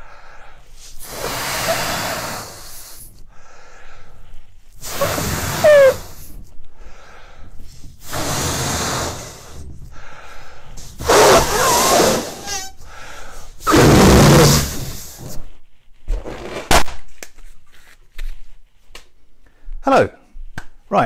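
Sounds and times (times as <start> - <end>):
in-breaths: 0.0 - 13.7, 19.4 - 19.8
person blowing into glove: 0.8 - 3.2, 4.7 - 6.5, 7.6 - 10.1, 10.7 - 15.6
rubber glove squeaks: 4.8 - 6.4, 11.0 - 13.0, 13.6 - 16.6.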